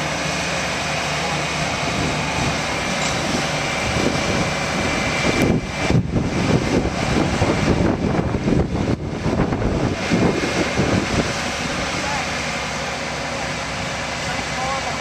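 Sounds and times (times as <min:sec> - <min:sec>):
crane diesel engine running: 0:00.0 - 0:15.0
wind buffeting microphone: 0:01.6 - 0:12.1.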